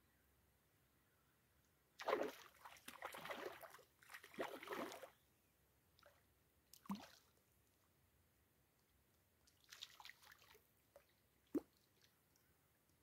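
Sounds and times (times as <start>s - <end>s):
water plop: 2.0s - 5.1s, 6.7s - 7.3s, 9.5s - 12.1s.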